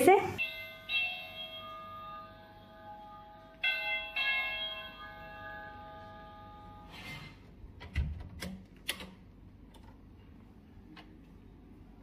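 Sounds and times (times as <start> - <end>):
electronic doorbell chime: 0.4 - 7.0.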